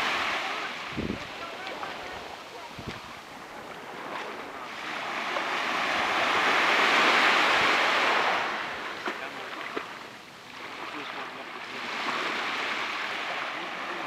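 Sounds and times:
sea waves washing on beach: 0.0 - 14.0.

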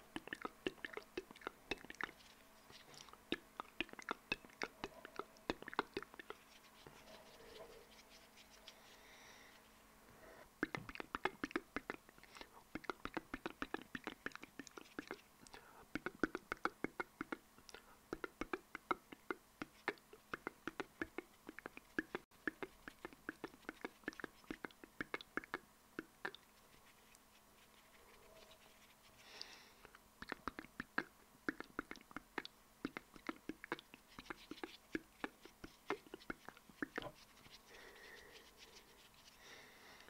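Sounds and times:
wet mouth clicks and lip smacks: 0.0 - 6.5, 10.6 - 27.2, 29.3 - 37.3
soft breath: 6.3 - 10.5, 15.4 - 15.9, 28.1 - 30.0, 37.4 - 40.0.

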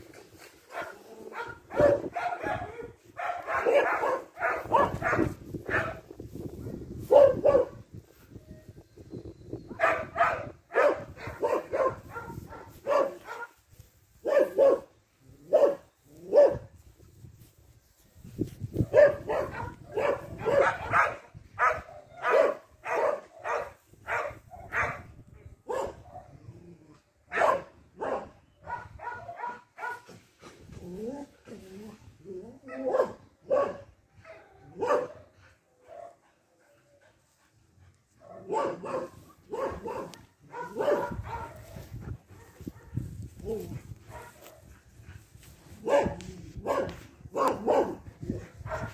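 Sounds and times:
dog barking: 0.7 - 6.0, 7.1 - 7.8, 9.8 - 13.6, 14.2 - 14.9, 15.5 - 16.7, 18.8 - 25.1, 25.7 - 26.3, 27.3 - 30.1, 32.7 - 35.2, 38.2 - 44.7, 45.8 - 48.0, 48.6 - 48.9.

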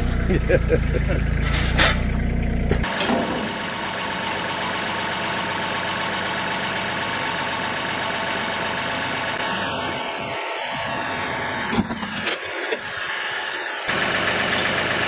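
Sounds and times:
deep low hum: 0.0 - 2.9
tractor diesel engine running: 0.0 - 15.0.

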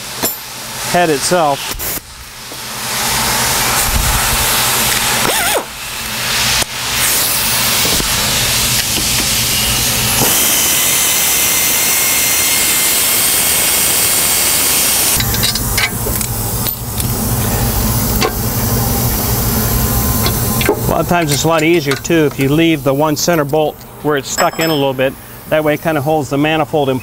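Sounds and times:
exhaust air hissing: 0.8 - 24.2
air ratchet running: 15.0 - 22.5.

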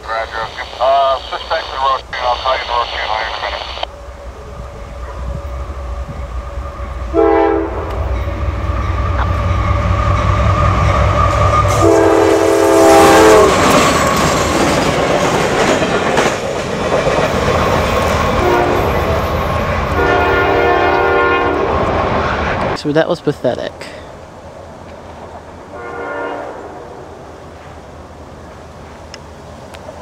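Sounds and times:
locomotive air horn: 7.1 - 7.9, 11.7 - 13.7, 18.4 - 19.0, 20.0 - 21.7, 25.7 - 26.9
wheels clattering on rails: 13.5 - 18.4.

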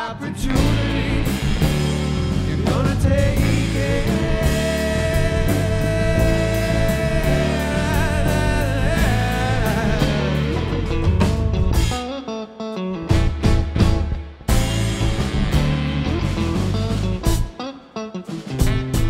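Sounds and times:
man singing: 0.0 - 12.2
funk band playing live: 0.0 - 19.0
saxophone: 0.0 - 19.0.

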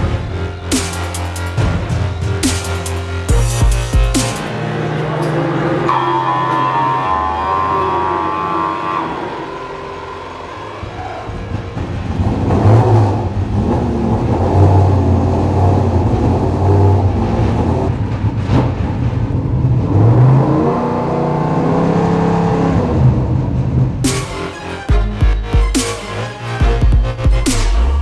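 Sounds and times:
racing engine revving: 0.0 - 24.9.

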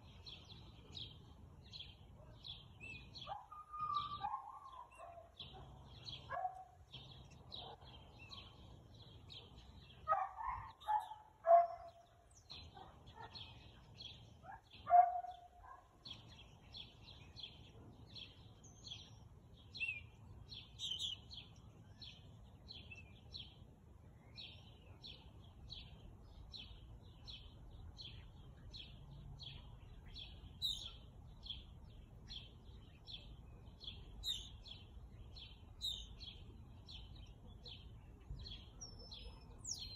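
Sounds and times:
dog barking and yelping: 3.3 - 5.7, 6.3 - 6.7, 10.1 - 11.9, 14.5 - 15.8.

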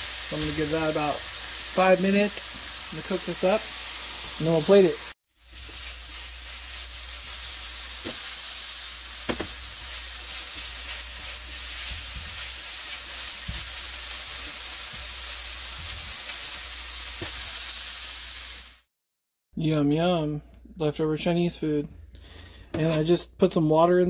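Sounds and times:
noodles sizzling in a frying pan: 0.0 - 18.9.

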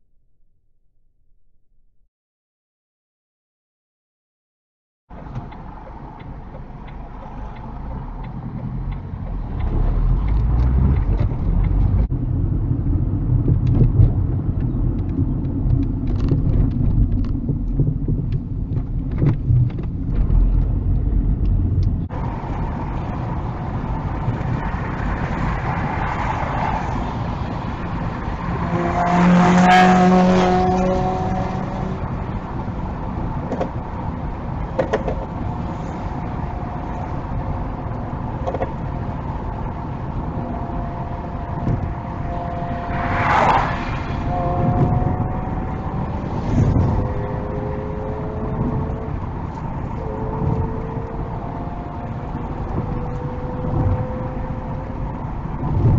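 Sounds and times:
car road noise and engine hum: 5.1 - 55.9
passing car droning: 22.1 - 33.3, 35.3 - 55.9.

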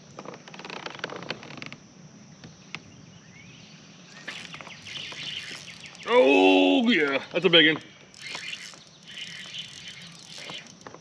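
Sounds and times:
faint bird chirps: 2.3 - 6.9, 7.6 - 10.8.

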